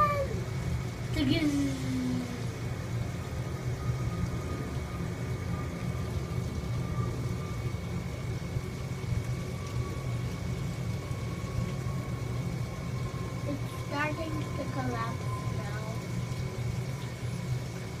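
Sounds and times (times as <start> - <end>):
high-pitched whine: 0.0 - 18.0
low background hum: 0.0 - 18.0.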